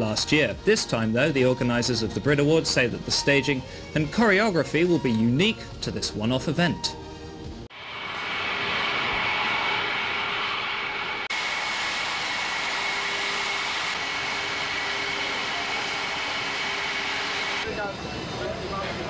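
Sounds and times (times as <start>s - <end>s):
high turbine whine: 7.7s - 19.0s
jet engines idling: 7.7s - 19.0s.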